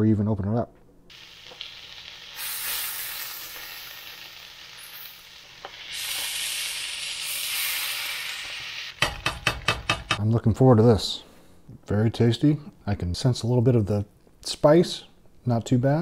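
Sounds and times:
food sizzling in a frying pan: 1.1 - 9.1.

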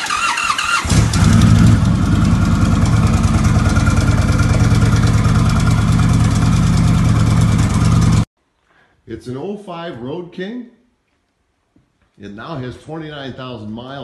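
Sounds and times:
motorcycle engine idling: 0.9 - 8.3.

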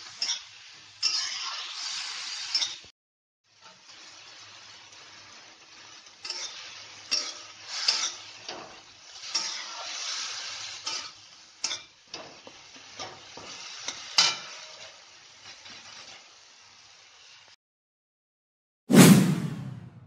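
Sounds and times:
metal spatula scraping a pan: 0.0 - 2.8, 5.9 - 14.9
tomatoes sizzling: 0.0 - 2.9, 3.5 - 17.6.

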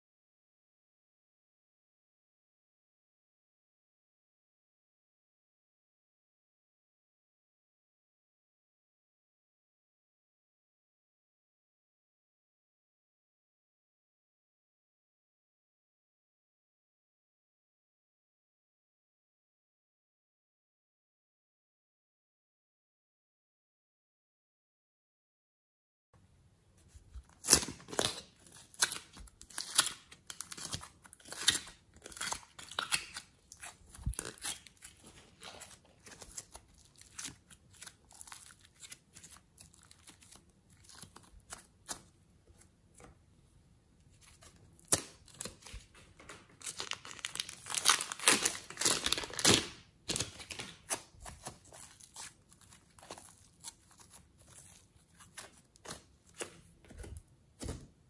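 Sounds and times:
slime stretched and squeezed: 46.6 - 57.1.

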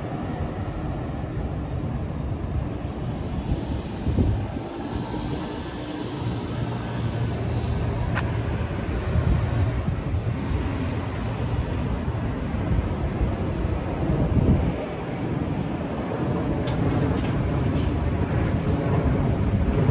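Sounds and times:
city street rumble: 0.0 - 19.9.

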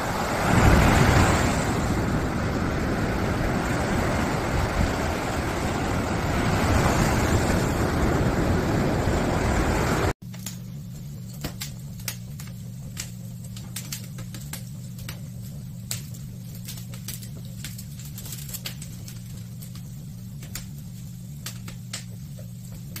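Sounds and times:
low hum: 0.0 - 23.0
wood fire crackling and popping: 10.2 - 23.0.

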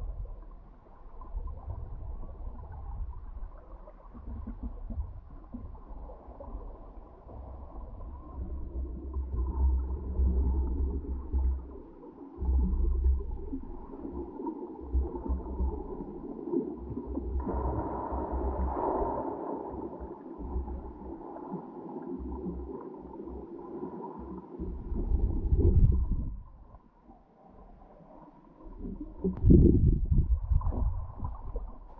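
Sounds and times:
muffled underwater water flow: 0.0 - 31.9.

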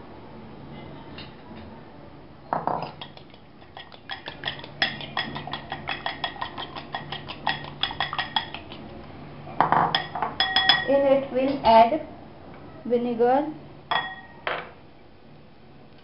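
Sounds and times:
utensil clinking against glass bowl: 2.6 - 8.8, 9.6 - 11.0, 13.9 - 14.4.

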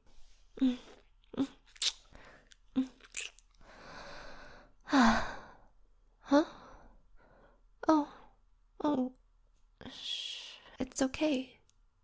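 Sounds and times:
lip smacks: 0.9 - 3.6.

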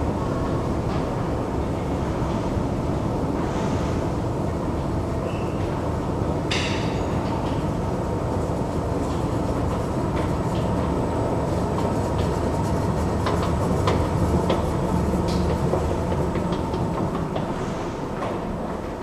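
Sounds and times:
escalator rumble and hum: 0.0 - 19.0
escalator steps clicking: 9.0 - 17.6.

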